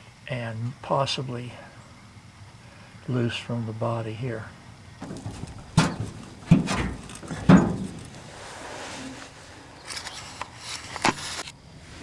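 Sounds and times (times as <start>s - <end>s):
sharp knocks on metal: 5.0s - 8.1s
rubbing and scraping: 5.0s - 11.5s.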